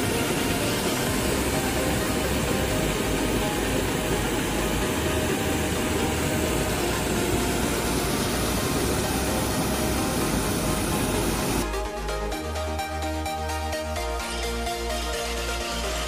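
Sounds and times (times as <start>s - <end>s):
stream water rushing over rocks: 0.0s - 11.7s.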